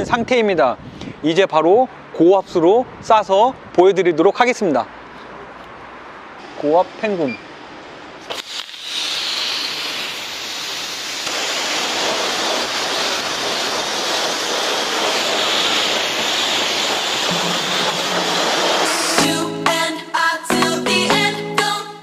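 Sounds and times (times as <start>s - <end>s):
pressure washer spraying water: 8.2s - 19.8s.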